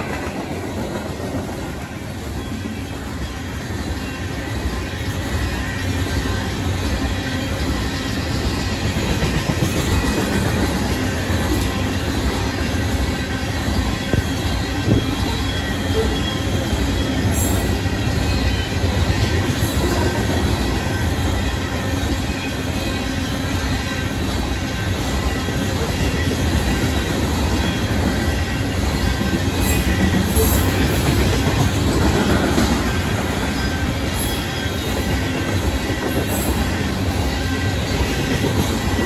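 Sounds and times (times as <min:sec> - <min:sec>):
train wheels rumbling on rail: 0:00.0 - 0:39.0.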